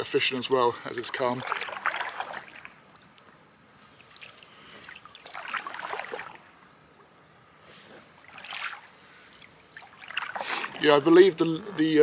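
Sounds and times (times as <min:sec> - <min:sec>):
paddle splashing in water: 0:00.9 - 0:02.9, 0:04.0 - 0:06.5, 0:08.1 - 0:10.9.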